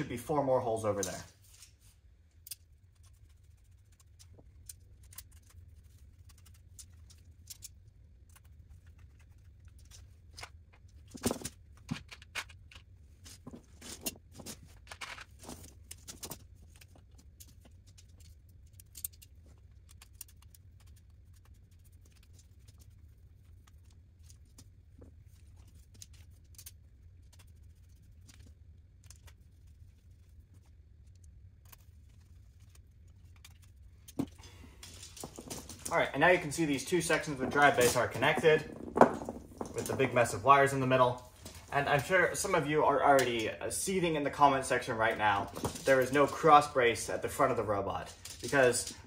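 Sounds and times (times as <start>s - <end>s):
metal parts clicking and scraping: 2.3s - 21.5s, 31.6s - 40.4s, 44.7s - 49.0s.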